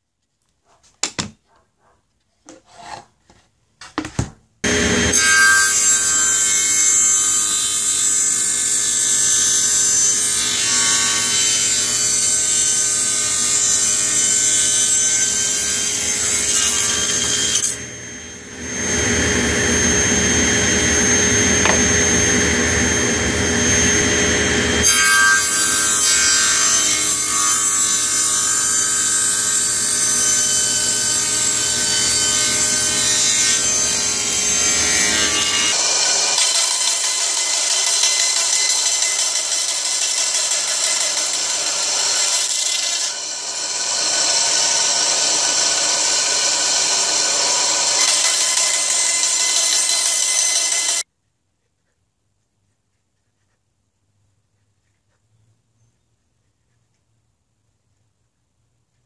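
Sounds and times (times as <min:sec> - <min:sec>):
table saw whining: 0:04.1 - 0:51.0.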